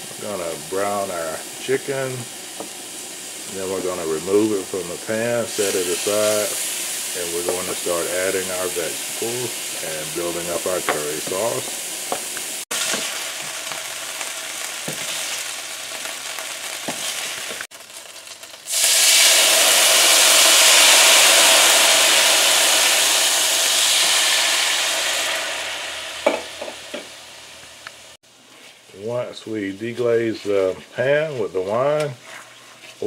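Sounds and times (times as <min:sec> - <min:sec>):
loud hiss of sizzling and steam: 0:00.0 - 0:17.7, 0:18.6 - 0:28.2
chicken sizzling in skillet: 0:00.0 - 0:33.0.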